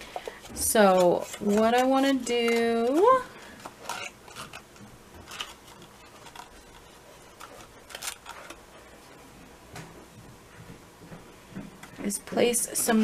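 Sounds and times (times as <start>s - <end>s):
cardboard box crackling and clicking: 0.2s - 8.6s.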